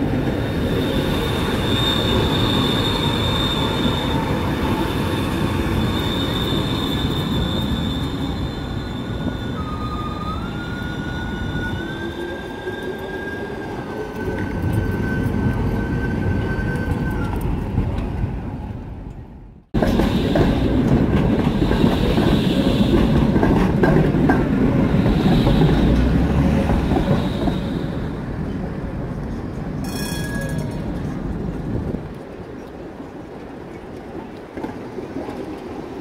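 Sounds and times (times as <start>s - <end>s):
tram wheels rumbling on rails: 0.0s - 36.0s
high wheel squeal: 0.6s - 17.4s, 24.9s - 28.2s.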